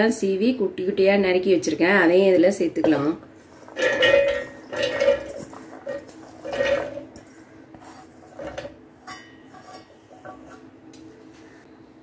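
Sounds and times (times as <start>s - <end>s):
faint hum: 0.0s - 12.0s
carrot pieces clattering into steel jar: 3.7s - 7.2s.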